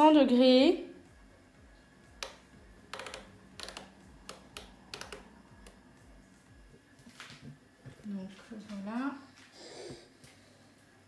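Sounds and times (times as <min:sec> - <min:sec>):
clicks and taps on controls: 0:02.2 - 0:05.8.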